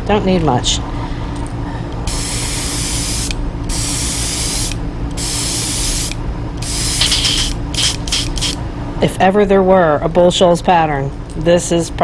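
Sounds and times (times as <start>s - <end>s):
steady low hum: 0.0s - 12.0s
airbrush spraying hiss: 2.1s - 8.6s.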